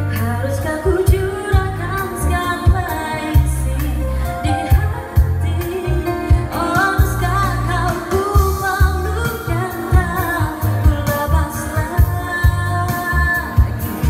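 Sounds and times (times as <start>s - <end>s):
keyboard accompaniment: 0.0s - 14.0s
woman singing into microphone: 0.0s - 14.0s
steady drum beat: 6.3s - 14.0s.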